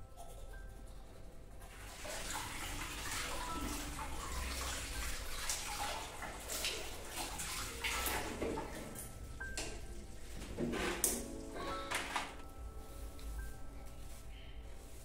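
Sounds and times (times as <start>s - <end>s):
tap water running into sink: 1.7s - 11.3s.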